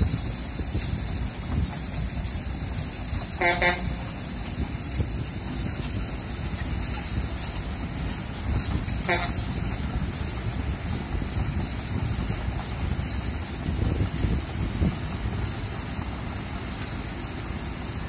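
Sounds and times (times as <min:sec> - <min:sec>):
excavator diesel engine running: 0:00.0 - 0:18.0
wind buffeting microphone: 0:00.0 - 0:18.0
double horn toot: 0:03.3 - 0:04.2, 0:08.9 - 0:09.7.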